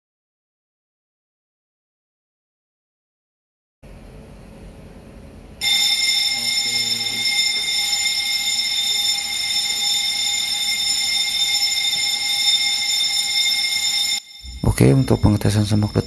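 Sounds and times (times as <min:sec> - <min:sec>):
fire alarm ringing: 0:05.6 - 0:16.0.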